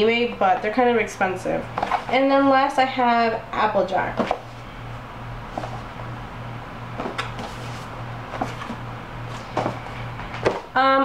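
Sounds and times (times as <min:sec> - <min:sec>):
steady low hum: 0:00.0 - 0:11.0
cardboard box knocks and scrapes: 0:07.0 - 0:10.7.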